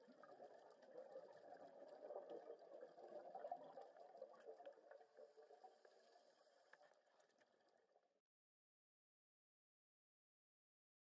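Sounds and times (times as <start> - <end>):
underwater air bubbles: 0.0 - 7.0.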